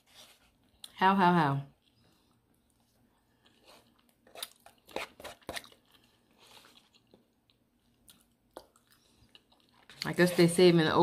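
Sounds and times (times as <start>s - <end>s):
person chewing food: 1.8s - 10.1s.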